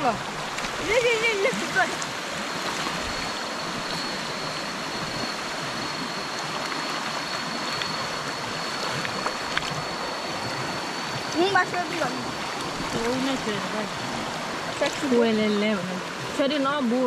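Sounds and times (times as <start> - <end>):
stream water rushing: 0.0 - 17.0
thin high-pitched tone: 3.0 - 13.9.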